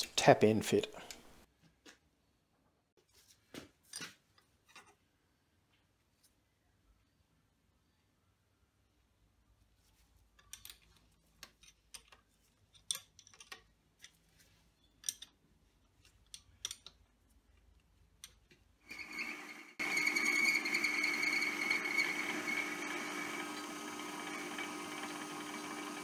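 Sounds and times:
metal clicks and clinks: 10.4 - 14.2, 15.0 - 15.4, 16.2 - 17.0
metal lathe whining: 18.9 - 26.0.

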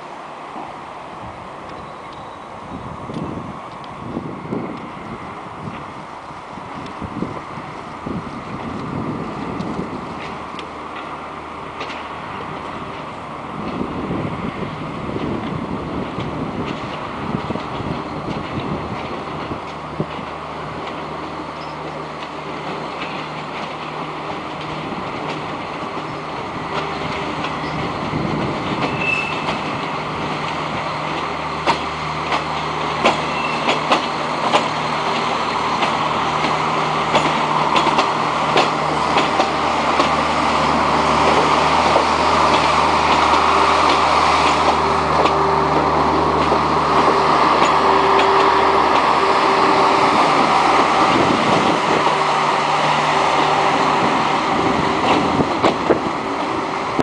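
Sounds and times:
train motor hum: 0.0 - 57.0
train wheels clicking over rail joints: 8.2 - 57.0.

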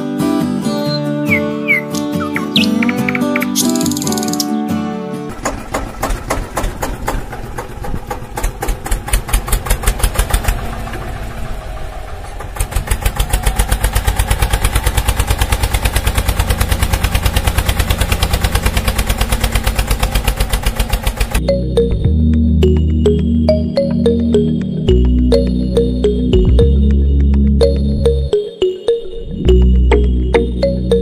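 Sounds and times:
small engine chugging: 5.3 - 21.4.

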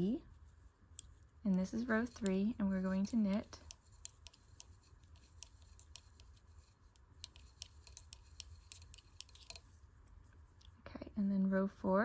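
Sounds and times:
knitting needles clicking: 0.9 - 10.8.

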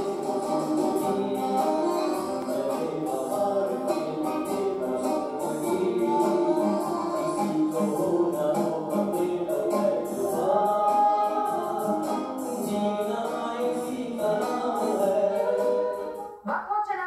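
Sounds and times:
man singing into a microphone: 0.0 - 16.2
band playing with steady beat: 0.0 - 16.5.

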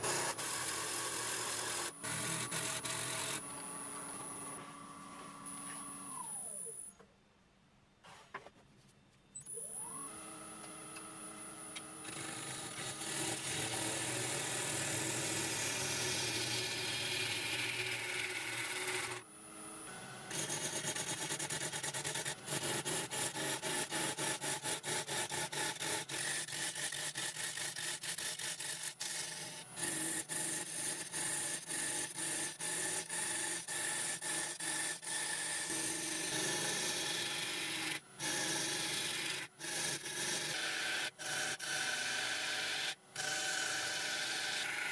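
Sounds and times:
turning tool scraping wood: 0.0 - 4.5, 12.1 - 19.2, 20.3 - 37.2
wood lathe humming: 0.0 - 6.4, 9.9 - 23.6, 25.7 - 30.0, 32.7 - 44.9.

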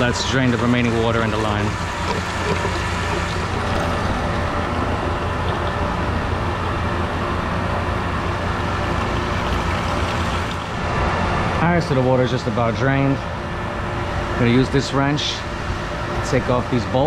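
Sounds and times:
water pumps humming: 0.0 - 17.0
water pouring into plastic bucket: 1.1 - 4.7, 8.3 - 10.9.

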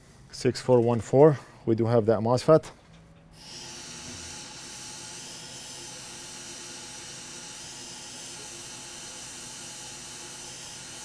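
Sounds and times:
hot air station hissing: 3.4 - 11.0.

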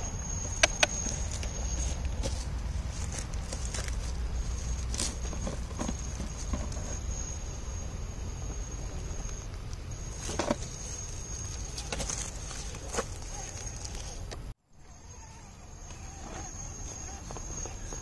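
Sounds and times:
low steady rumble: 0.0 - 18.0
steady high whine: 0.0 - 18.0.

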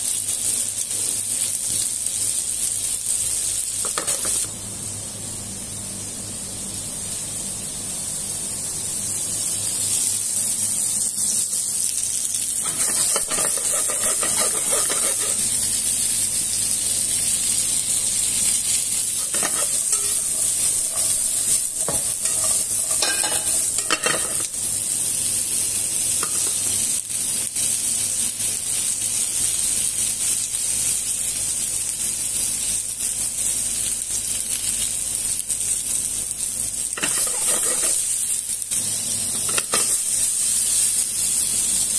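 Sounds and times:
vegetables sizzling in oil: 0.0 - 41.9
stirring scraping and clattering in pan: 12.6 - 15.6, 19.1 - 24.6, 37.0 - 38.2, 39.4 - 40.3.

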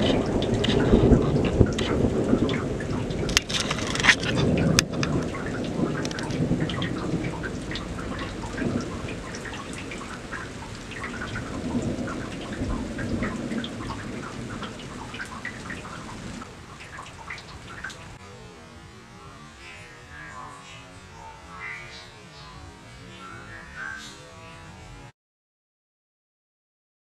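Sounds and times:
thunder rumbling: 0.0 - 18.3
raindrops pattering: 0.0 - 25.1.

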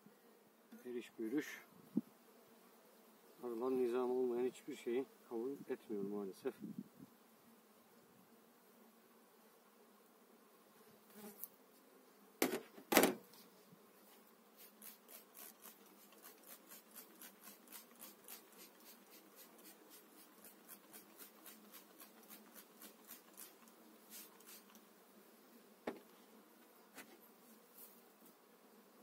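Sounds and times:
spray bottle spraying: 14.6 - 24.8.

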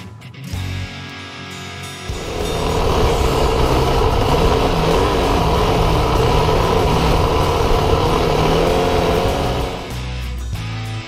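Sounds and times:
broad rushing noise: 2.1 - 10.0
dirt bike engine running: 2.1 - 10.2.

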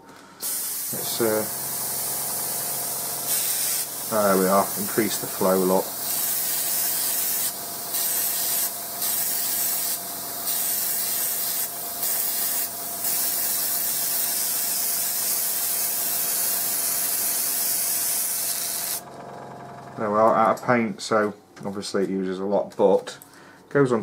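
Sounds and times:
airbrush hissing: 0.4 - 19.0.

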